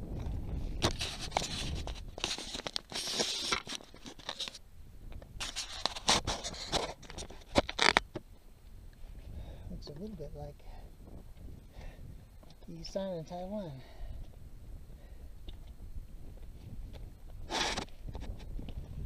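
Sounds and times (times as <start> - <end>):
boots crunching over scree: 5.4 - 8.3, 15.0 - 19.0.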